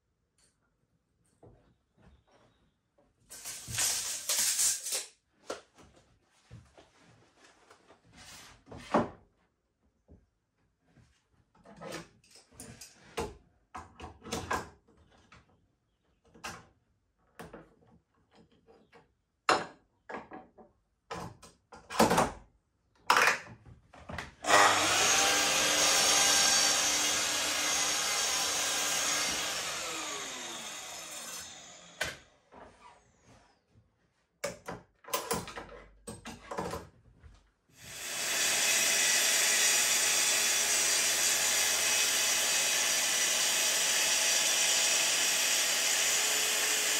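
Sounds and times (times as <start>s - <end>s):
power tool running: 3.3s - 4.8s, 24.4s - 32.4s, 37.8s - 46.9s
mitre saw cutting: 3.3s - 5.0s, 24.4s - 32.3s, 37.8s - 46.9s.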